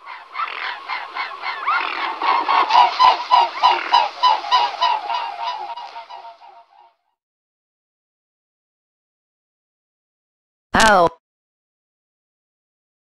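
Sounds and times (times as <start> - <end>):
waterfowl honking: 0.0 - 7.0.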